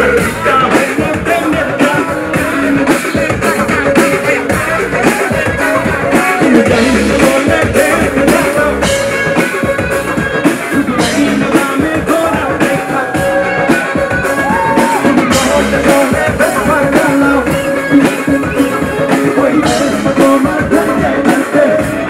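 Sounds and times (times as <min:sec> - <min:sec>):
drums: 0:00.0 - 0:22.0
electric guitar: 0:00.0 - 0:22.0
man singing: 0:00.0 - 0:22.0.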